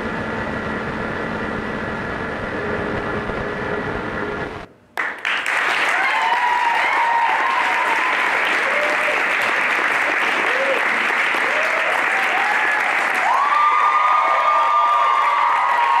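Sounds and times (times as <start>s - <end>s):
low rumbling soundtrack: 0.0s - 4.7s
audience applause and cheering: 5.0s - 16.0s.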